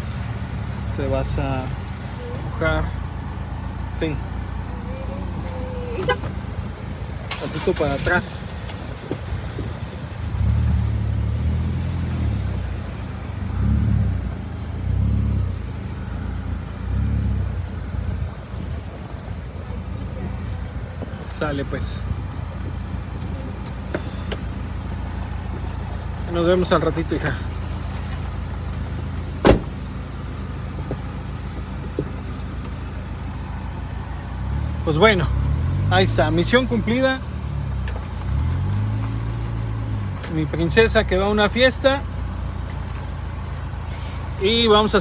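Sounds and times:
car engine revving: 0.0 - 18.6, 20.1 - 42.0
car door shutting: 29.4 - 29.9.

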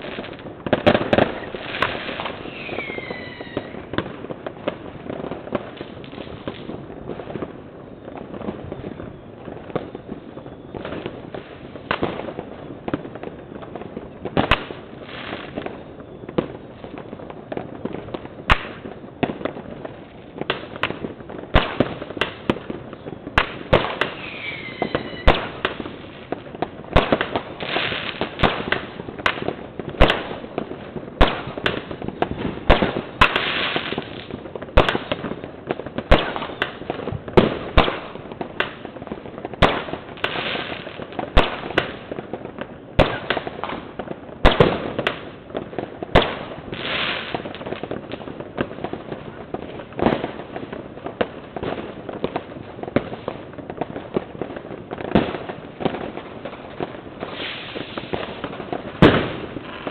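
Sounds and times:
firecrackers crackling: 0.0 - 59.9
fireworks banging: 0.0 - 59.9
falling firework whistle: 0.8 - 4.0, 7.4 - 13.7, 15.2 - 18.0, 22.6 - 25.9, 36.1 - 36.8, 57.2 - 59.9.

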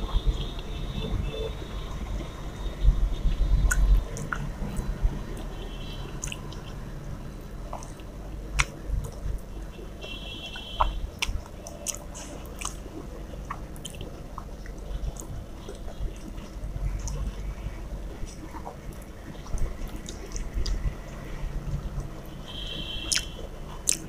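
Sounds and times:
person chewing and mouth smacks: 3.6 - 5.5, 6.2 - 6.8, 7.7 - 9.3, 10.5 - 17.4, 18.1 - 20.9, 23.0 - 24.0.

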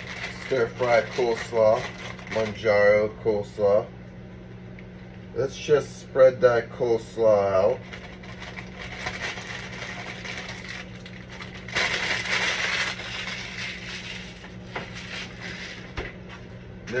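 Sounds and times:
plastic bag crinkling: 0.0 - 2.7, 7.7 - 16.0.

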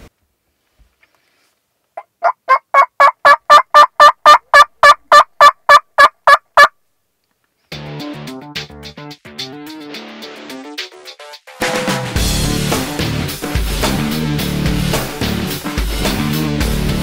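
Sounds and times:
turkey call yelps: 2.0 - 6.7
music: 7.7 - 17.0.

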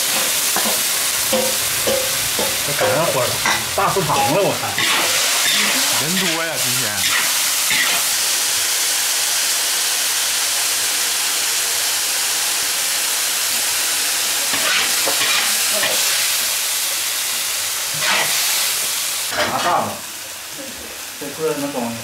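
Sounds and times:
metal spatula scraping wok: 0.0 - 6.4, 7.0 - 8.2, 14.5 - 16.2, 18.0 - 18.6, 19.3 - 19.9
vegetables sizzling in wok: 0.0 - 22.0.

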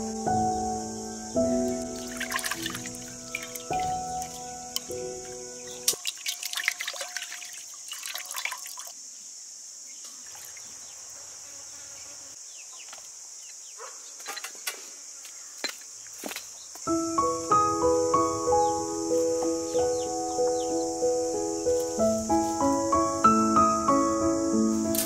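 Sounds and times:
high-pitched hiss: 0.0 - 6.2, 7.3 - 25.0
water splashing in metal basin: 1.9 - 4.4, 5.8 - 9.0
water drips and light taps: 5.8 - 8.9.

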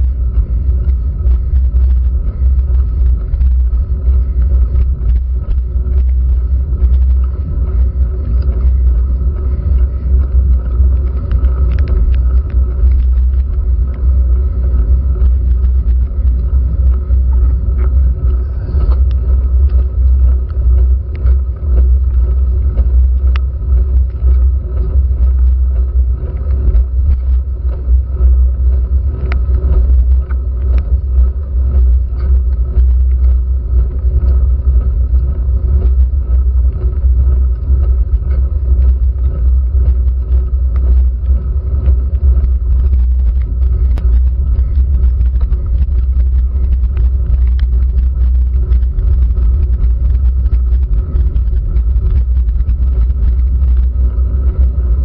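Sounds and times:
low rumble of road vibration: 0.0 - 55.0
raindrops ticking on camera: 0.0 - 55.0.

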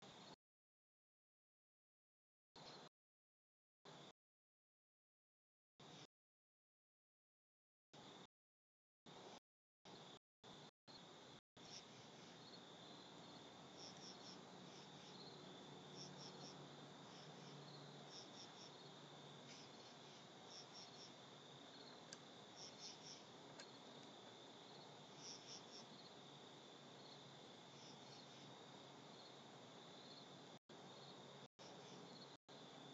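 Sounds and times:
background hiss: 9.1 - 32.9
high insect hum: 9.1 - 32.9
crickets chirping: 10.0 - 32.9.

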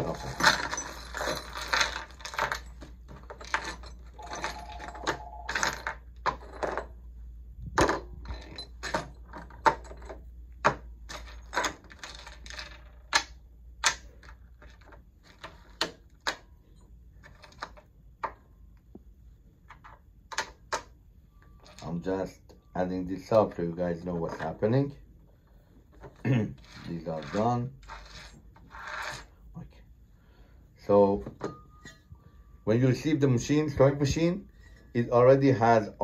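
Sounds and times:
metal bolts clinking on wood: 0.0 - 7.0, 7.8 - 18.4.

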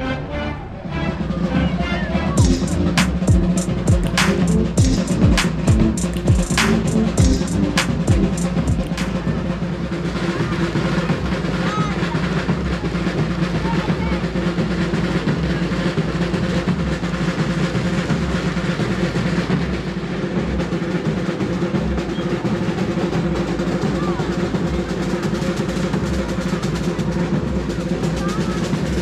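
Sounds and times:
crowd voices: 0.0 - 29.0
parade drums playing: 1.2 - 29.0.

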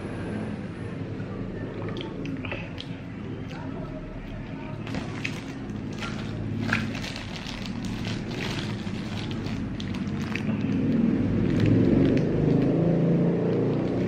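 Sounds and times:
low engine-like drone: 0.0 - 14.0
paper wrapper crinkling: 4.3 - 12.8, 13.5 - 14.0.

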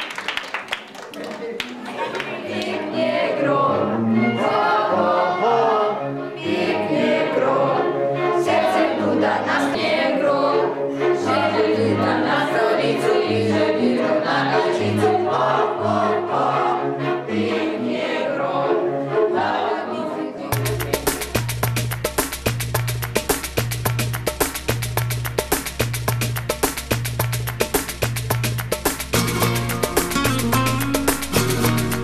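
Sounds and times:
voices singing song: 1.9 - 21.8
bass line: 20.6 - 32.0.

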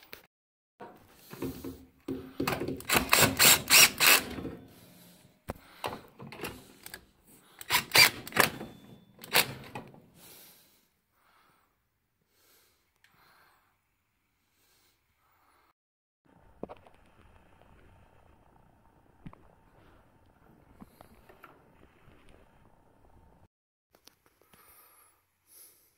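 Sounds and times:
cordless drill clicking: 2.6 - 4.5, 7.6 - 9.8.

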